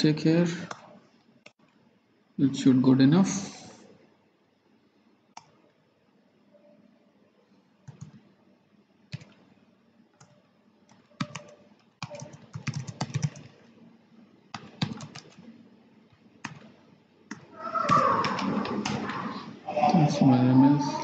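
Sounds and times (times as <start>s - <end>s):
typing on computer keyboard: 7.8s - 8.2s, 9.1s - 9.4s, 10.2s - 13.6s, 14.5s - 15.4s, 16.4s - 16.7s.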